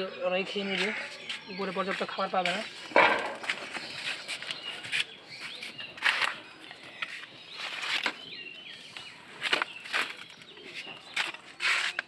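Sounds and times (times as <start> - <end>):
small birds chirping: 0.0 - 12.0
cactus stems rustling and scraping: 7.0 - 8.3, 9.3 - 12.0.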